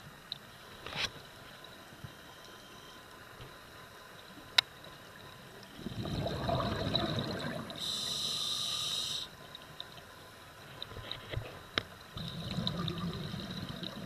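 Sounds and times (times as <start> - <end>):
exhaled bubbles gurgling: 5.7 - 8.0, 12.2 - 14.0
regulator inhalation hiss: 7.7 - 9.4.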